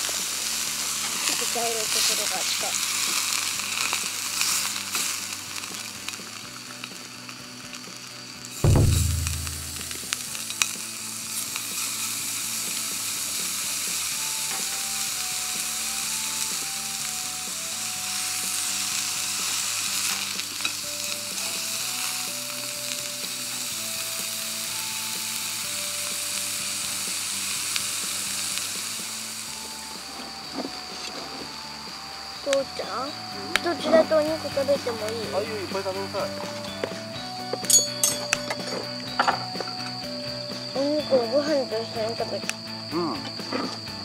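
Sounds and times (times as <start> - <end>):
beef sizzling in skillet: 0.0 - 44.0.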